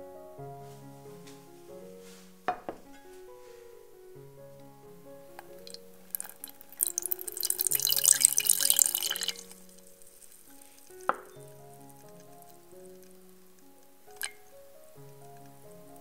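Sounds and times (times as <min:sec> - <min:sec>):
soft background music: 0:00.0 - 0:16.0
milk pouring into pot: 0:05.6 - 0:12.4, 0:14.2 - 0:14.4.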